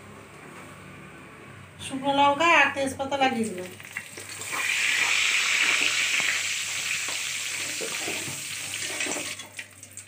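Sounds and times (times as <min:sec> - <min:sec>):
hot oil sizzling: 0:03.6 - 0:10.0.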